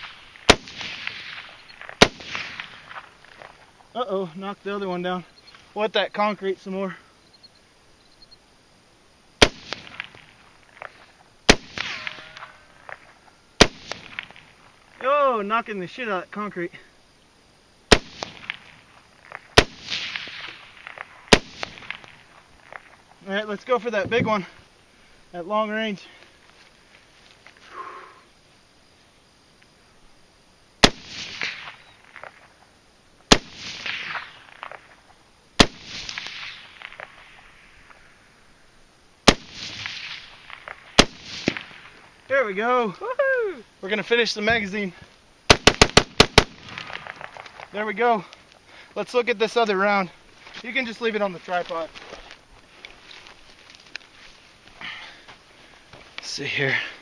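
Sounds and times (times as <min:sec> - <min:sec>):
rifle shots: 0:00.0 - 0:03.1, 0:09.4 - 0:10.4, 0:11.5 - 0:12.5, 0:13.6 - 0:14.5, 0:17.9 - 0:18.8, 0:19.6 - 0:22.2, 0:30.8 - 0:31.9, 0:33.3 - 0:34.8, 0:35.6 - 0:37.2, 0:39.2 - 0:42.0, 0:45.5 - 0:47.5.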